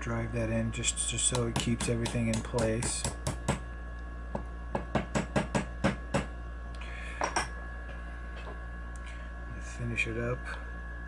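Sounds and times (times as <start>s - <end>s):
small hammer tapping punch: 1.3s - 3.6s.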